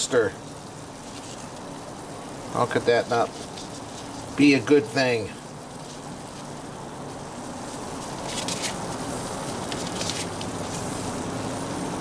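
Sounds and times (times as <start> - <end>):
patties sizzling on griddle: 0.0 - 12.0
paper crinkling: 1.0 - 1.8, 3.2 - 4.4, 7.6 - 10.9.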